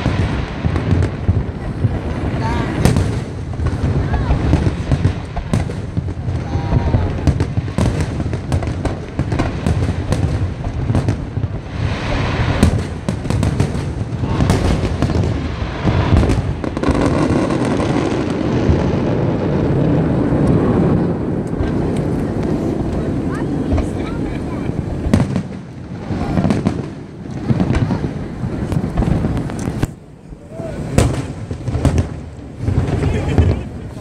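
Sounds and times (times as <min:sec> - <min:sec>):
firework shell bursts and crackling: 0:00.0 - 0:34.0.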